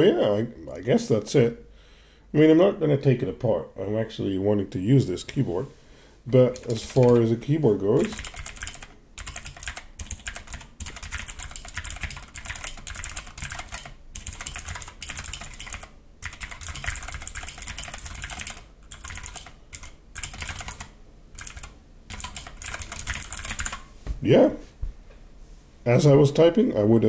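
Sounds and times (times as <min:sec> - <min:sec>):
mechanical keyboard typing: 0:06.5 - 0:23.9.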